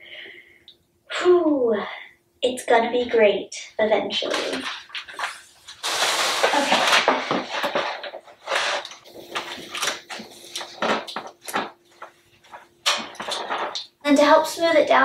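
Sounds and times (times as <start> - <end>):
wallpaper rustling and crackling: 4.2 - 13.9.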